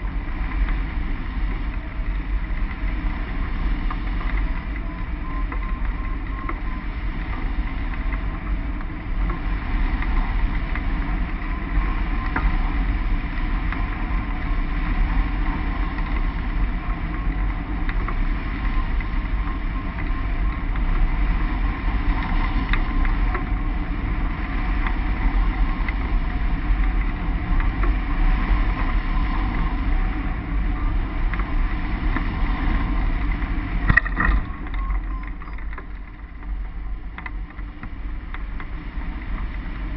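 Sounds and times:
wind rushing over microphone: 0.0 - 39.9
faint steady whistle: 4.8 - 6.8.

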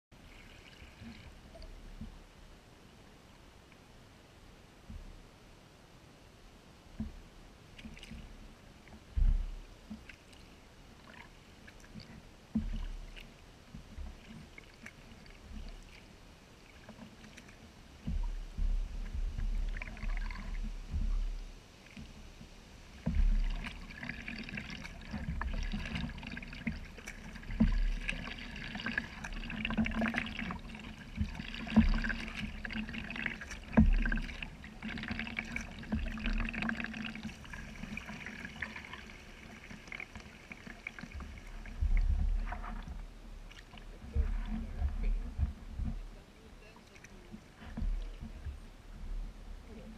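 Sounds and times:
paddle strokes splashing: 0.2 - 2.4, 6.9 - 49.9.

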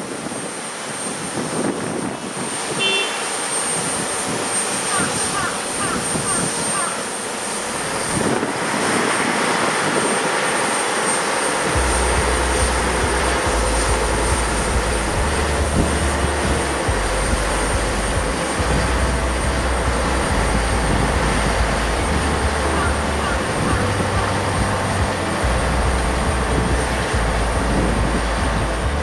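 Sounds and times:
aircraft towing tractor: 0.0 - 29.0
thin high whine: 0.0 - 29.0
low rumble: 11.6 - 29.0.

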